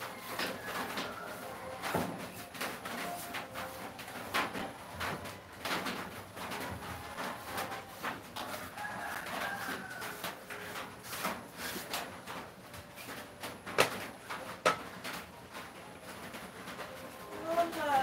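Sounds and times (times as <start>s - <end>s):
rooster crowing: 0.2s - 2.0s, 8.4s - 10.6s.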